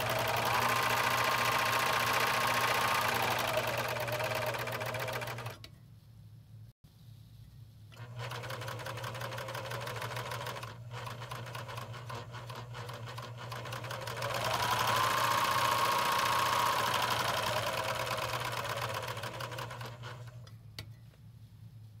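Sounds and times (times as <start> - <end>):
serger machine running: 0.0 - 5.5, 14.1 - 20.4.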